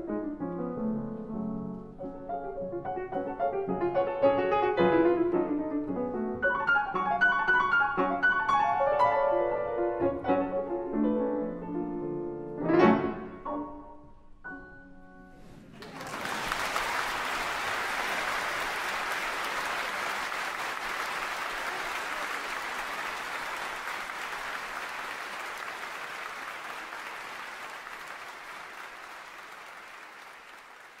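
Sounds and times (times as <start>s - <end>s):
audience applause: 15.7s - 31.0s.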